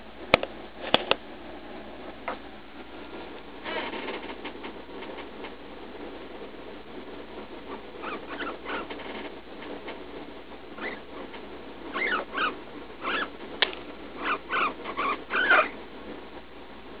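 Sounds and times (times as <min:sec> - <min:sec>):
guinea pig squeaking: 0:07.7 - 0:09.3, 0:10.8 - 0:13.4, 0:14.2 - 0:15.8.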